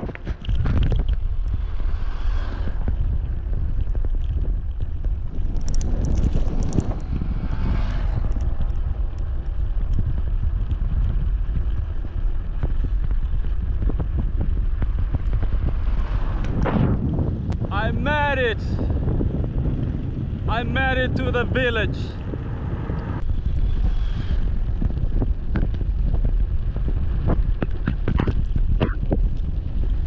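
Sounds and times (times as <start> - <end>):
bicycle road noise: 0.0 - 30.0
wind rumbling on microphone: 0.0 - 30.0.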